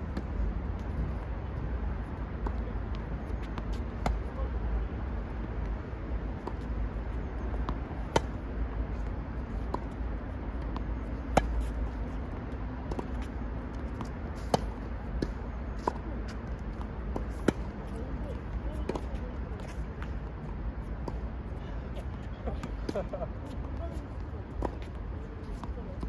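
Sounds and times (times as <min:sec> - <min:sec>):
steady low rumble: 0:00.0 - 0:26.0
tennis ball bouncing: 0:02.3 - 0:04.4, 0:05.6 - 0:20.2, 0:24.5 - 0:26.0
racket hitting tennis ball: 0:07.5 - 0:08.4, 0:10.7 - 0:11.8.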